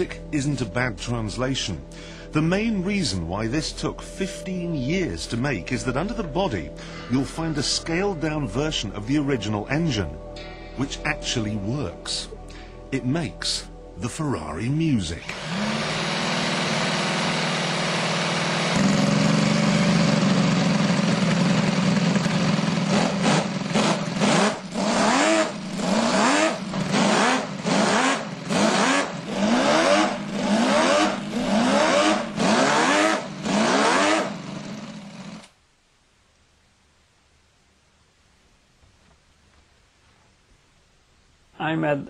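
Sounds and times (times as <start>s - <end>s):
model engine revving: 15.2s - 35.5s.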